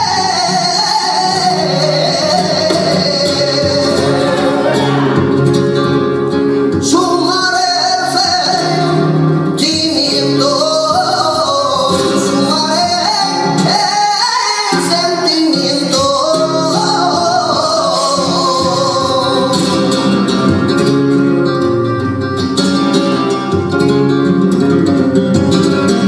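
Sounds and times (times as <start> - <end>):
man singing: 0.0 - 20.7
flamenco guitar: 0.0 - 26.0.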